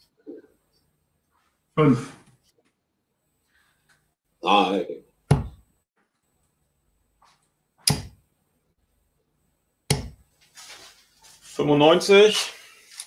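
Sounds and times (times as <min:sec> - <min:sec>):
darts thudding into dartboard: 0:05.3 - 0:05.6, 0:07.8 - 0:08.2, 0:09.9 - 0:10.2.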